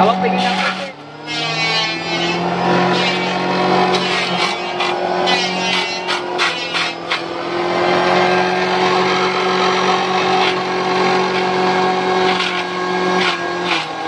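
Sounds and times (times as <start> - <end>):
electric motor humming: 0.0 - 14.0
stems cracking on blades: 3.9 - 7.3.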